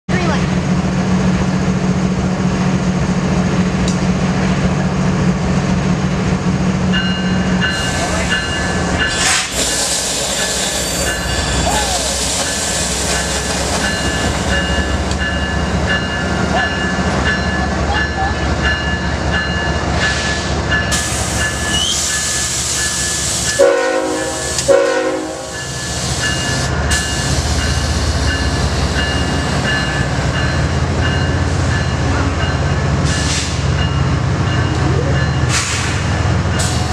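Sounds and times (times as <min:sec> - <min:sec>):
diesel locomotive rumbling: 0:00.1 - 0:36.9
train horn blasts: 0:23.6 - 0:25.6.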